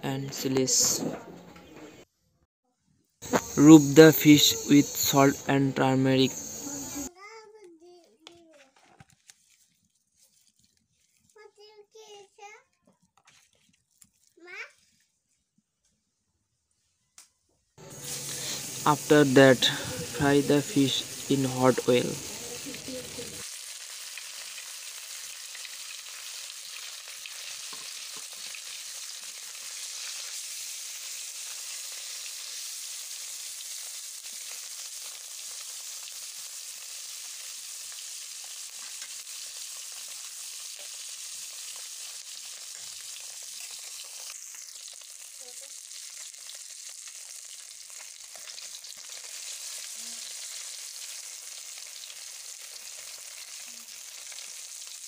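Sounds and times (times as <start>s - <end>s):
fish sizzling in hot oil: 3.2s - 7.1s, 17.8s - 55.0s.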